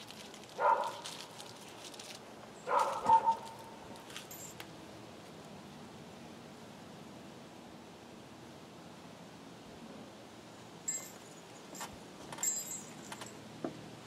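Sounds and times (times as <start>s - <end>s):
dog barking: 0.6s - 1.0s, 2.7s - 3.6s.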